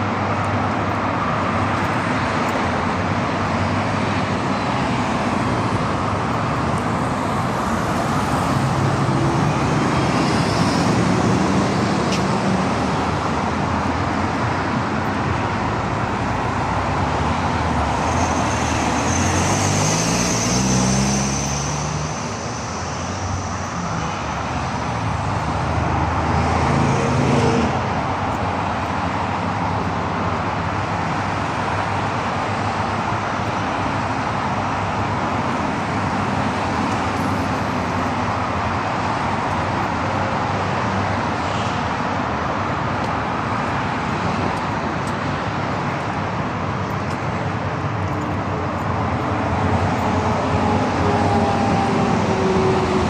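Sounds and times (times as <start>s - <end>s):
road traffic passing: 0.0s - 53.0s.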